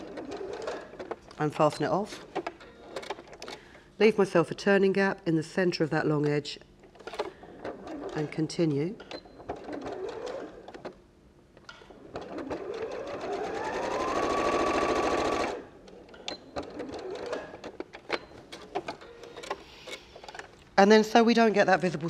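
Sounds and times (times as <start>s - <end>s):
sewing machine motor whine: 9.2s - 10.9s, 12.0s - 15.8s.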